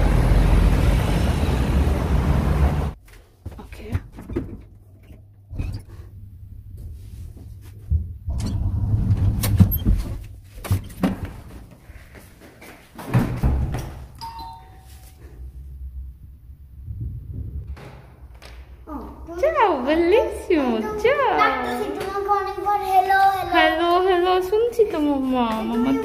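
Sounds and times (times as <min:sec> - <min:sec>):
knocks and clunks: 0:03.5 - 0:07.0, 0:16.9 - 0:18.8
low rumbling handling noise: 0:04.0 - 0:11.6, 0:15.2 - 0:19.3.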